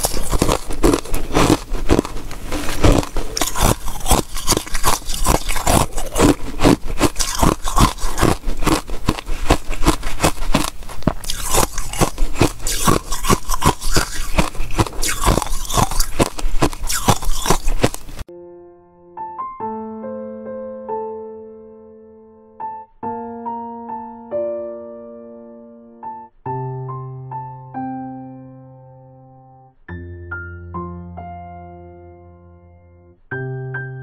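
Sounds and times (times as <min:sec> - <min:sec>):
crunching of ice being chewed: 0:00.0 - 0:18.2
soft piano notes: 0:18.3 - 0:34.0.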